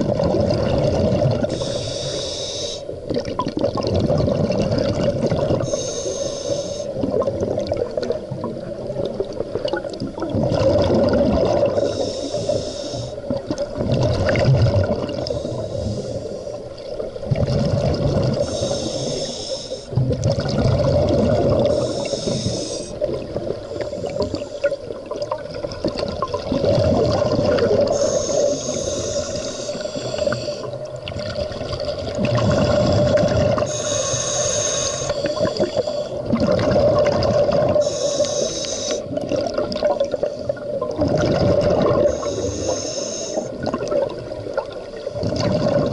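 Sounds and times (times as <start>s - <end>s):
exhaled bubbles bursting: 0.0s - 1.6s, 3.1s - 5.7s, 7.0s - 11.9s, 13.2s - 15.4s, 16.8s - 18.5s, 19.9s - 22.4s, 23.0s - 28.5s, 30.1s - 33.7s, 35.2s - 38.0s, 39.0s - 42.4s, 43.4s - 45.9s
diver breathing through regulator: 1.4s - 3.0s, 5.5s - 7.0s, 11.6s - 13.3s, 15.1s - 16.8s, 18.3s - 20.0s, 21.5s - 24.9s, 27.4s - 30.8s, 32.2s - 39.2s, 41.7s - 43.6s
steady hum: 21.1s - 24.9s, 27.4s - 30.9s, 32.3s - 36.3s.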